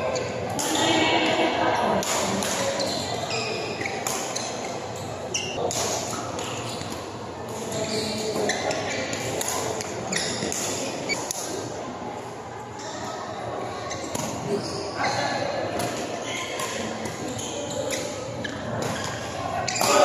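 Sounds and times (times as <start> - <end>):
echoing murmur of voices: 0.0 - 20.0
racket hitting shuttlecock: 2.0 - 3.0, 3.8 - 4.7, 5.6 - 7.7, 8.3 - 11.6, 18.7 - 20.0
shoes squeaking on court floor: 2.2 - 11.3, 13.7 - 20.0.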